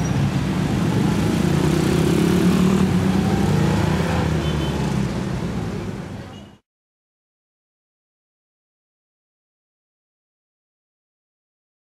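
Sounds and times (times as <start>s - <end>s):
road traffic rumble: 0.0s - 6.6s.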